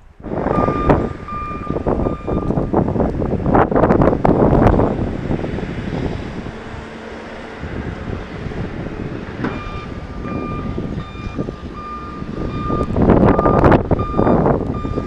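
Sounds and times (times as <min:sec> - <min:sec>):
low rumble: 0:00.0 - 0:15.0
backup alarm beeping: 0:00.5 - 0:02.7, 0:09.5 - 0:15.0.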